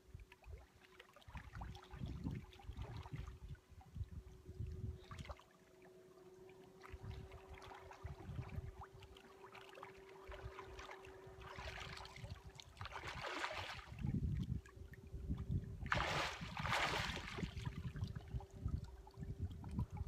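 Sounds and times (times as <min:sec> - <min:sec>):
faint steady hum: 0:00.0 - 0:20.0
water lapping on shore: 0:00.0 - 0:20.0
person wading through water: 0:00.1 - 0:20.0
wind rumbling on microphone: 0:01.3 - 0:05.4, 0:06.9 - 0:09.2, 0:10.2 - 0:20.0.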